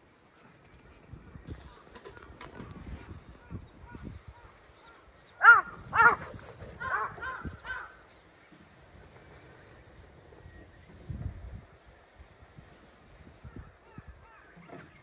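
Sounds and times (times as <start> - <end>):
small birds chirping: 2.7 - 8.5
crow cawing: 5.4 - 6.2, 6.8 - 8.0.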